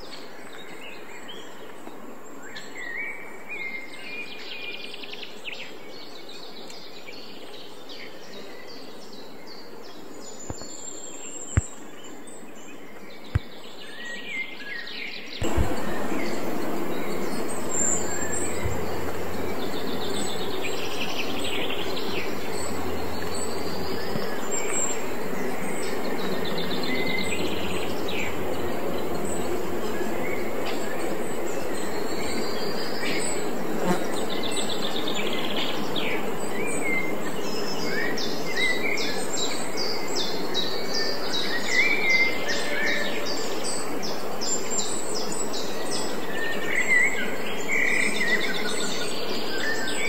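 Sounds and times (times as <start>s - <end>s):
small birds chirping: 0.0s - 50.0s
steady rushing noise with low hum: 15.4s - 42.4s.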